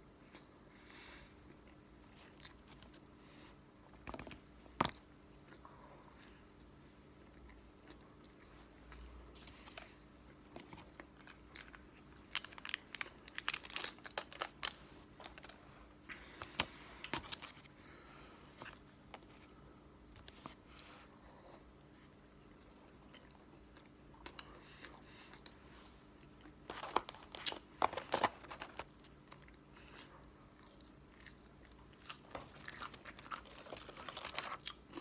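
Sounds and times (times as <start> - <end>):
person chewing: 28.2 - 35.0.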